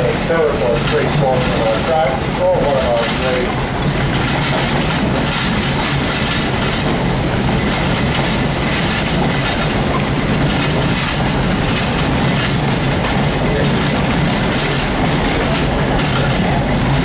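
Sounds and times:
train wheels on rails: 0.0 - 17.0.

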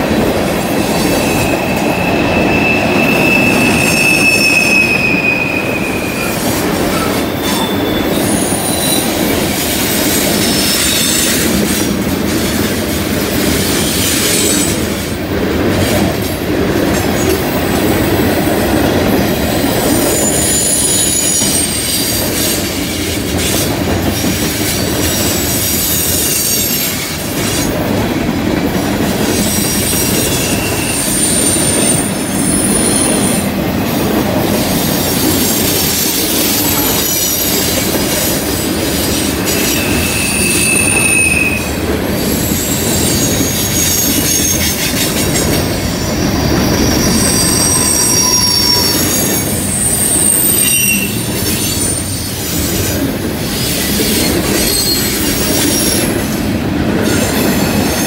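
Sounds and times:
steel wheels rumbling on rail: 0.0 - 58.0
high-pitched wheel squeals: 0.8 - 11.5, 19.9 - 22.6, 29.4 - 33.5, 38.9 - 52.6, 53.6 - 56.2.

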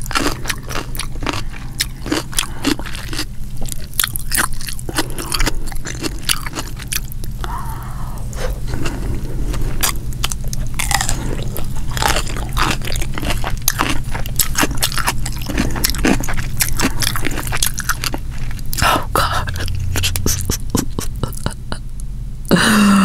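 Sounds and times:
crisp biting and chewing: 0.0 - 7.5, 8.2 - 21.4
steady low hum: 0.0 - 23.0
wet mouth clicks: 19.5 - 21.6.

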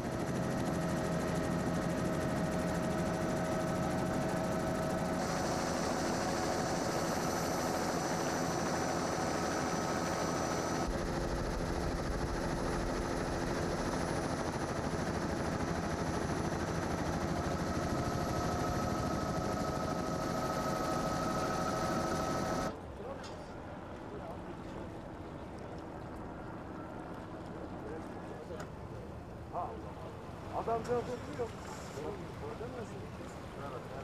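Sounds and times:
rapidly pulsing engine: 0.0 - 22.8.

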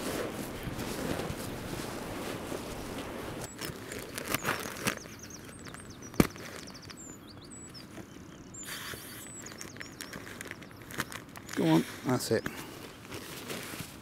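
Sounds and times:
camping gear knocks and rustles: 0.0 - 7.1
faint outdoor hiss: 0.0 - 14.0
small birds chirping and trilling: 3.4 - 13.7.

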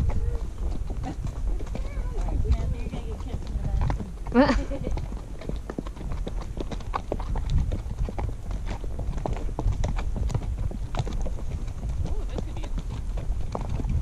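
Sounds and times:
hooves clip-clopping on dirt: 0.0 - 14.0.

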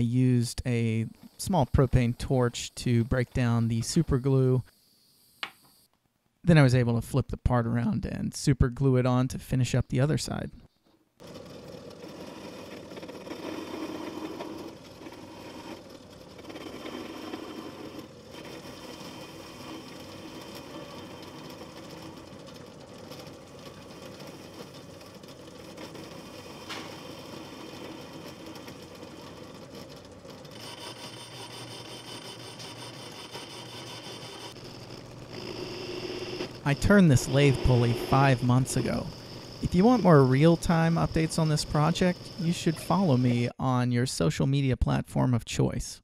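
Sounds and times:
metal lathe running: 11.2 - 43.5
lathe tool cutting metal: 12.0 - 22.3, 30.5 - 43.4.

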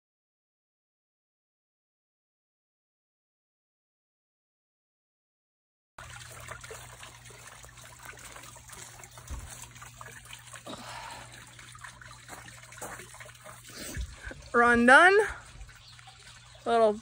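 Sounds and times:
fountain trickling and bubbling: 6.0 - 17.0.

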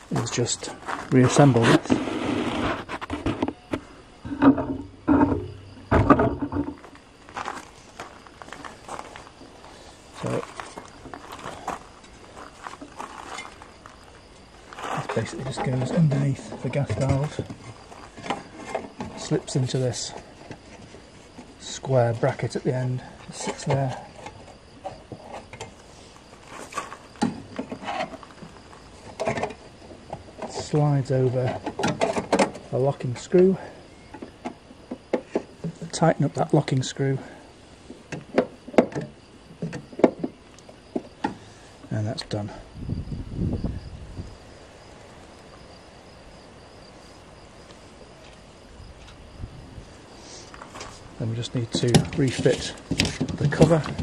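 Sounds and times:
insect chirping: 0.0 - 54.0
outdoor background hiss: 0.0 - 54.0
handling knocks: 51.6 - 54.0.

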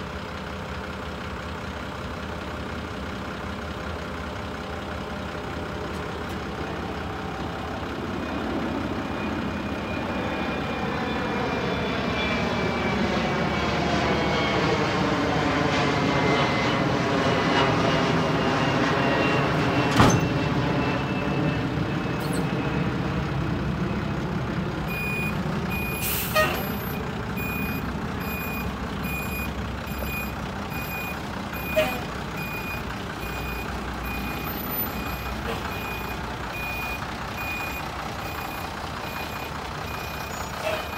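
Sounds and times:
truck engine running: 0.0 - 40.9
backup alarm beeping: 24.9 - 40.9.

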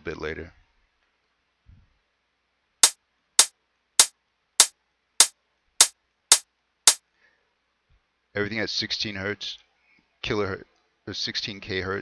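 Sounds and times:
closed hi-hat ticks: 2.8 - 7.0.

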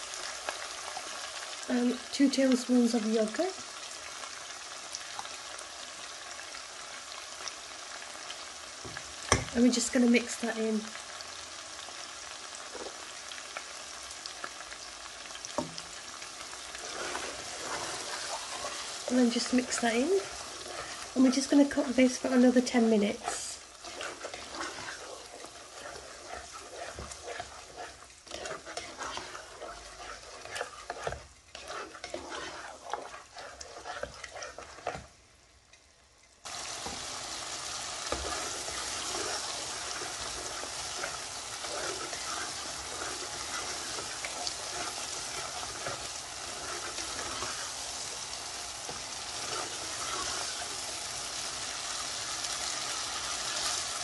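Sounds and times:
curry sizzling in a metal pan: 0.0 - 54.0
spoon scraping a pan: 16.6 - 35.1, 36.5 - 54.0.

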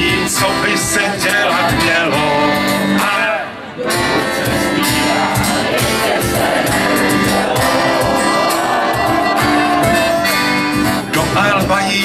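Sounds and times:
people singing: 0.0 - 3.5, 4.1 - 10.1
live band with acoustic guitar: 0.0 - 12.0.

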